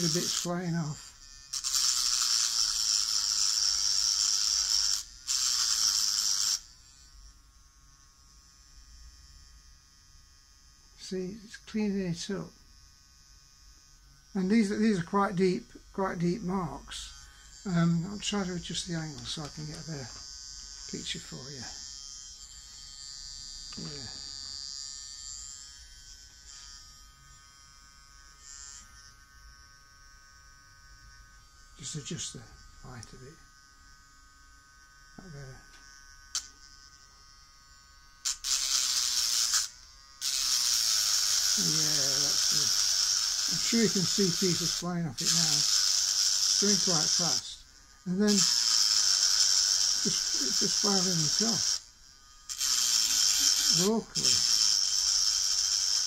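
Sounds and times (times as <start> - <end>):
rotary burr grinding metal: 0.0 - 7.0, 35.2 - 56.0
rotary tool humming: 0.0 - 56.0.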